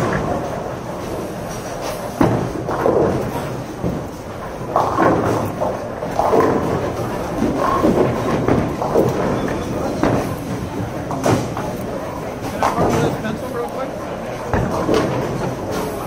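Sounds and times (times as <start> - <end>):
bowling balls and pins clattering: 0.0 - 16.0.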